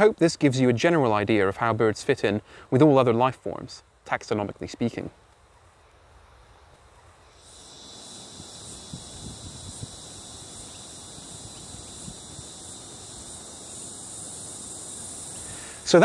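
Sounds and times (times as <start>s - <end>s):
insects chirring: 5.8s - 16.0s.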